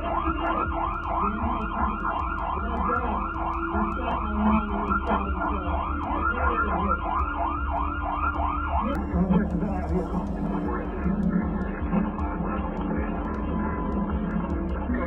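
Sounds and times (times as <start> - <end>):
siren in fast yelp mode: 0.0 - 9.0
steady low rumble: 0.0 - 15.0.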